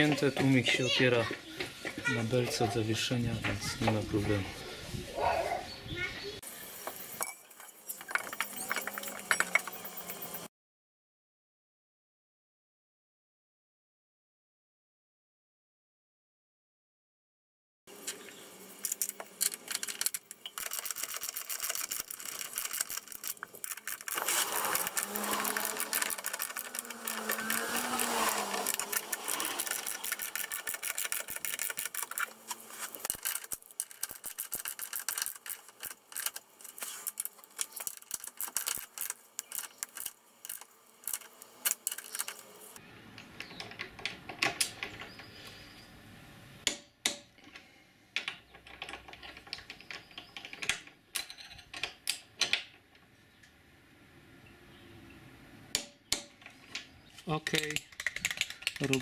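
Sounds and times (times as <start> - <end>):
ratchet wrench clicking: 18.8 - 42.4.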